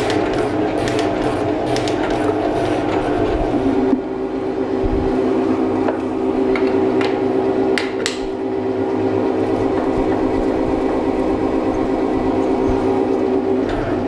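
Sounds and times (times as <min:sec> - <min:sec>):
machine motor hum: 0:00.0 - 0:14.0.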